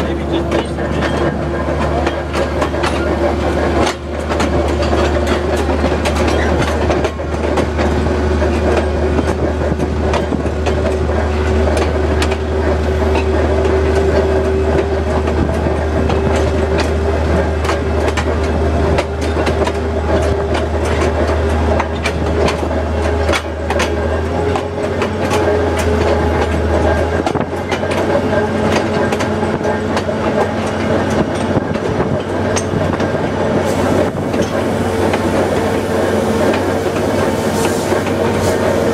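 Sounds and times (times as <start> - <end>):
diesel locomotive engine drone: 0.0 - 38.9
wheels clicking over rail joints: 0.0 - 38.9.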